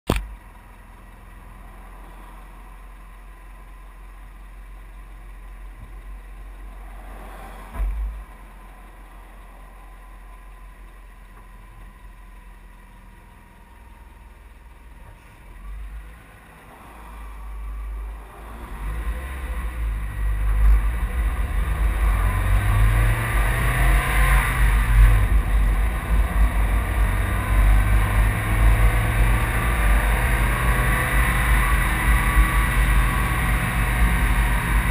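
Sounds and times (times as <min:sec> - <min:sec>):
vehicle engine idling: 0:00.2 - 0:34.9
vehicle accelerating: 0:05.7 - 0:10.6, 0:15.0 - 0:34.9
short thump: 0:07.6 - 0:08.2.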